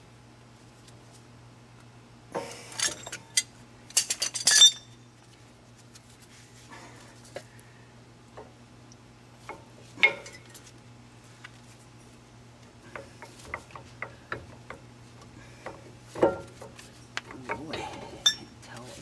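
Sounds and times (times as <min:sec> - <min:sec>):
metal clinking and rattling: 0:02.8 - 0:04.9.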